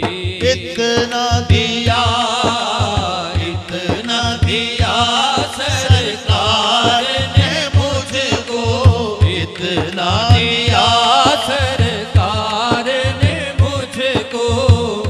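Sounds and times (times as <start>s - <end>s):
man singing through a microphone: 0.0s - 15.0s.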